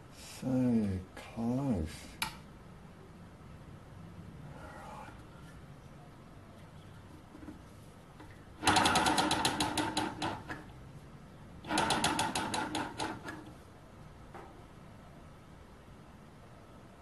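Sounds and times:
engine mechanism clicking rapidly: 8.6s - 10.6s, 11.6s - 13.5s.

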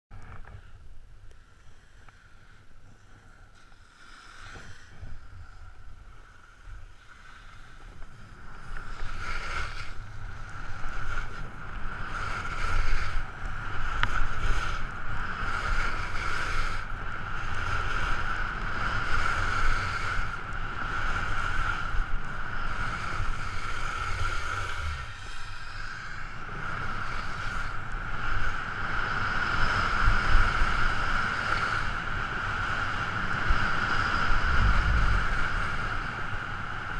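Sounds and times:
steady whine: 0.1s - 36.9s
wind buffeting microphone: 7.8s - 36.9s.

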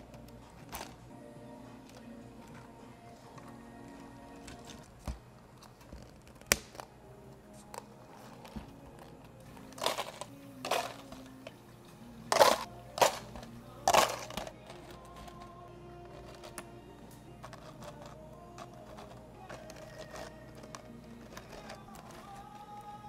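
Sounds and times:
plastic cups clicking: 0.0s - 1.0s, 7.6s - 11.6s, 12.2s - 23.0s
soft background music: 0.0s - 23.0s
ice cubes rattling into plastic cups: 9.6s - 11.6s, 12.3s - 16.6s, 17.4s - 23.0s.

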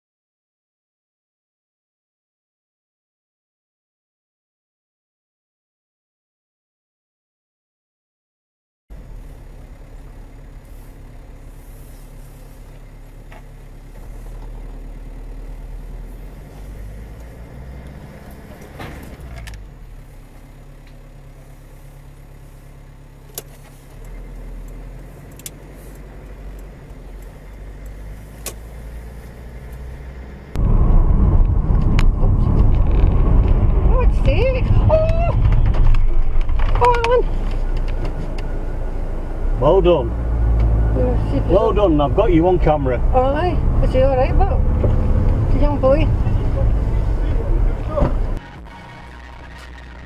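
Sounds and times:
car engine and road rumble: 8.9s - 50.0s
loud road and wind noise: 10.7s - 21.0s, 23.2s - 50.0s.

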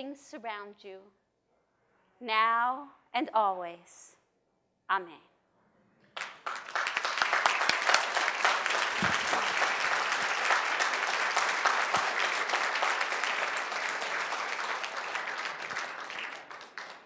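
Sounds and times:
large audience applauding: 6.2s - 17.0s.

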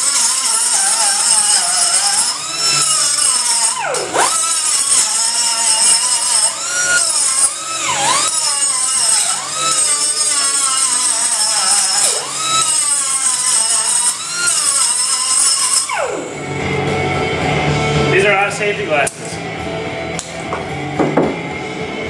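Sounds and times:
angle grinder cutting steel: 0.0s - 17.4s.

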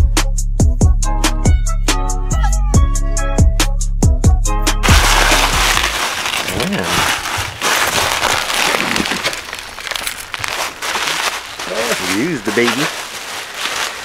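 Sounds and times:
bubble wrap crinkling: 4.8s - 14.0s.

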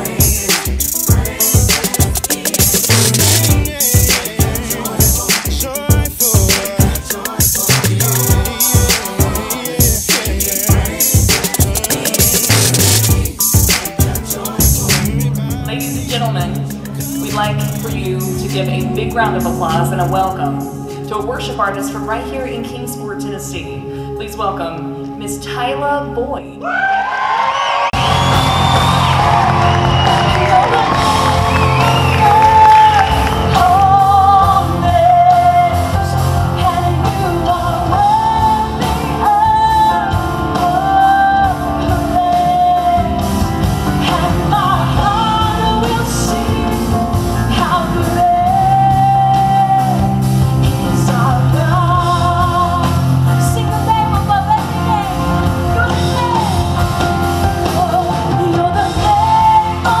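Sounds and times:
woman singing: 0.0s - 26.7s, 30.2s - 43.4s, 44.0s - 60.0s
live rock band playing: 28.0s - 60.0s.

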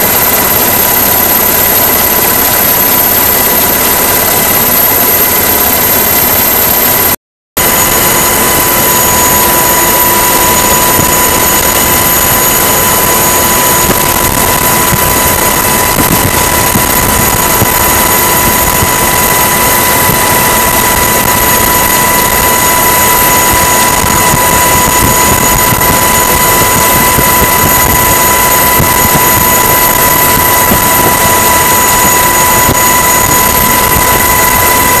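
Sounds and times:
mechanical roar with whine: 0.0s - 35.0s.

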